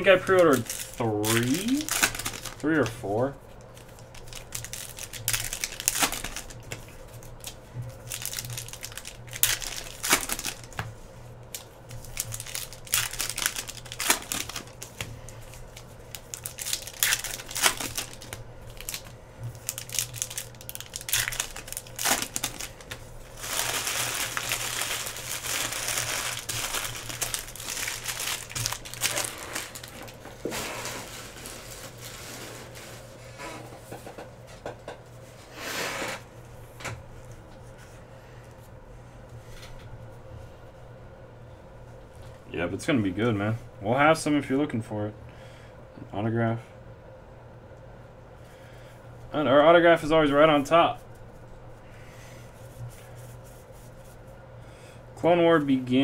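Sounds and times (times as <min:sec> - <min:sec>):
paper wrappers crinkling: 0:00.0 - 0:10.8, 0:11.4 - 0:33.2.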